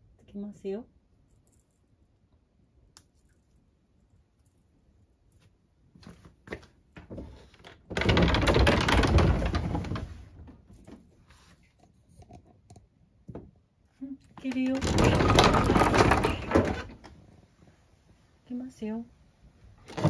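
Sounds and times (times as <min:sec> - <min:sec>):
wooden sliding door rattling open: 0:07.8 - 0:10.6, 0:14.7 - 0:17.1.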